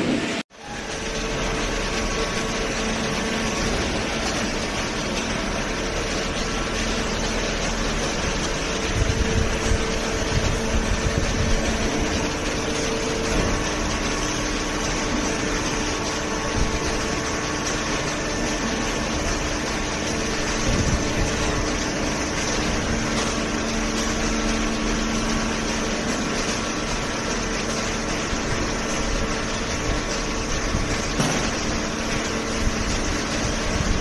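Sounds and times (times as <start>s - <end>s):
baler machine hum: 0.0s - 34.0s.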